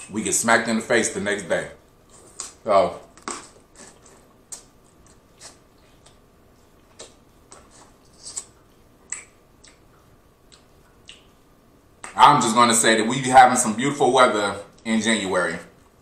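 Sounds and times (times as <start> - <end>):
mouth chewing wet clicks: 6.8 - 11.4.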